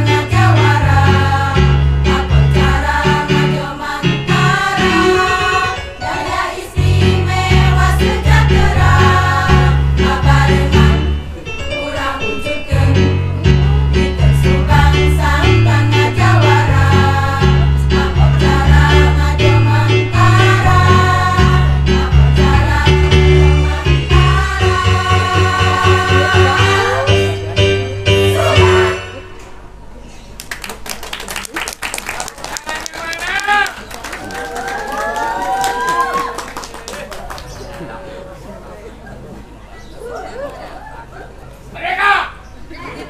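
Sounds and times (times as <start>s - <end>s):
women's choir singing: 0.0s - 13.6s, 14.3s - 29.4s.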